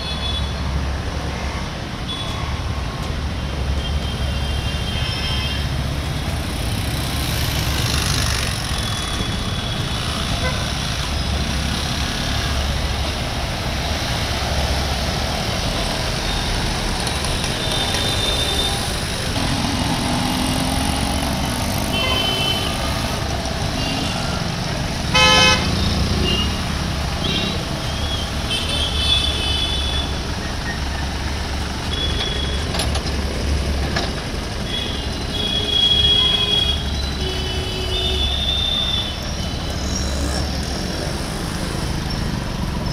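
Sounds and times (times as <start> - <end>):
vehicle horn honk: 25.1 - 26.5.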